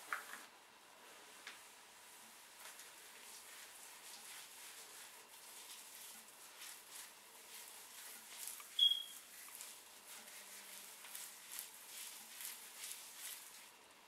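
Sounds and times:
hands swishing wet hair: 2.1 - 13.8
short high chirp: 8.8 - 9.2.

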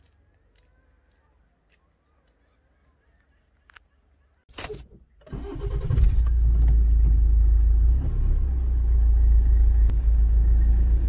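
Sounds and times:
car engine starting and running: 4.7 - 11.0.

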